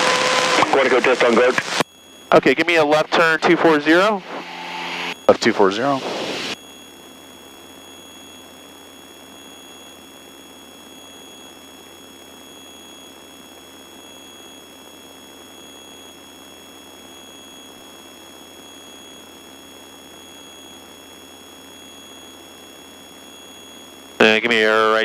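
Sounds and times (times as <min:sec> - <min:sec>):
pulsing high tone: 0:00.0 - 0:06.9
electrical hum and high whine: 0:00.0 - 0:25.0.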